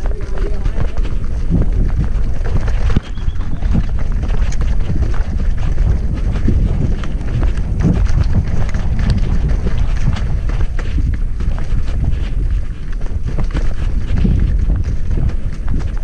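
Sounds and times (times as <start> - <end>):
bike rattling over stone paving: 0.0 - 16.0
wind buffeting microphone: 0.0 - 16.0.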